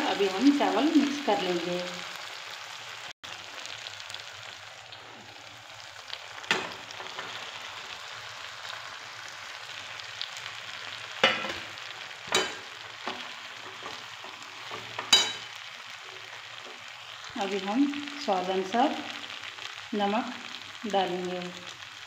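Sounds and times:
vegetables sizzling in wok: 0:00.0 - 0:22.0
utensils clanking against wok: 0:12.3 - 0:15.6.

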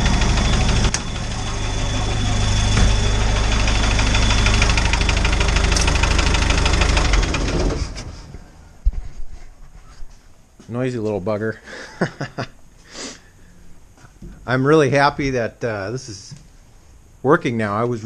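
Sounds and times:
diesel engine running: 0:00.0 - 0:08.8.

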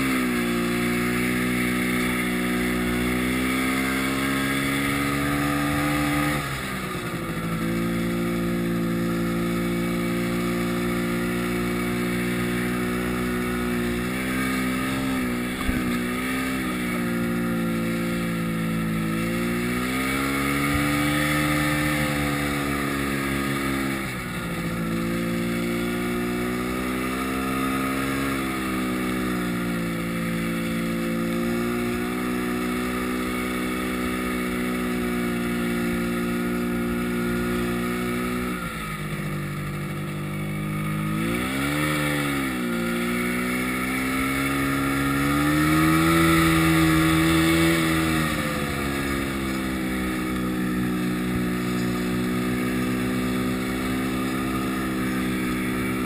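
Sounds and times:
snowmobile engine running: 0:00.0 - 0:56.0.

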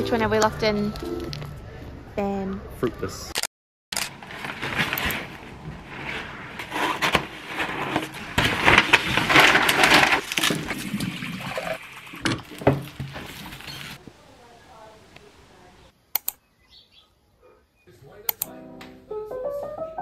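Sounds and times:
paper crinkling and rustling: 0:04.0 - 0:14.0.

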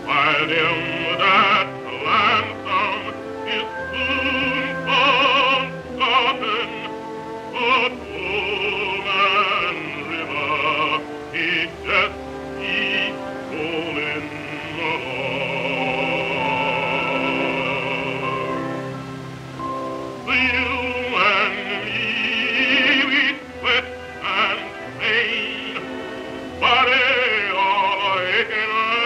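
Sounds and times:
man singing operatically: 0:00.0 - 0:19.0, 0:19.6 - 0:29.0
instrumental accompaniment: 0:00.0 - 0:29.0.

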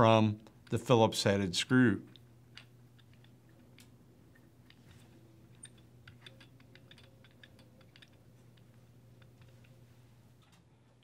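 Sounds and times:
low room hum: 0:00.0 - 0:11.0
small knob clicks: 0:05.5 - 0:09.8.

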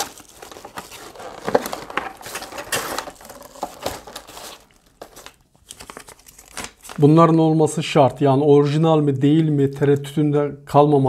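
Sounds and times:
cardboard and paper rustling: 0:00.0 - 0:07.0.

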